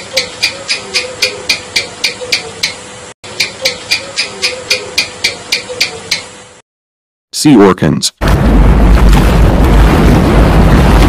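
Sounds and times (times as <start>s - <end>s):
gecko chirping clicks: 0.1s - 2.8s, 3.4s - 6.3s.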